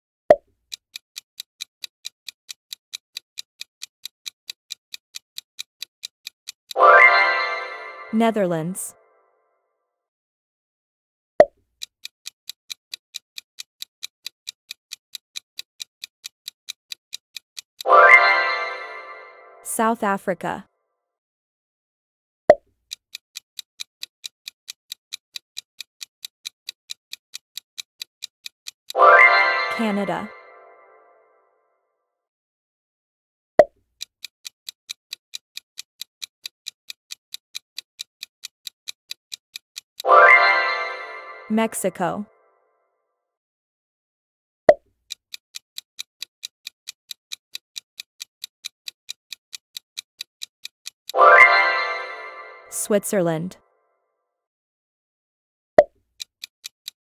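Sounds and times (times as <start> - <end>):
countdown clock ticking: 0.3 - 8.9, 11.8 - 20.6, 22.9 - 31.1, 34.0 - 42.3, 45.1 - 53.6.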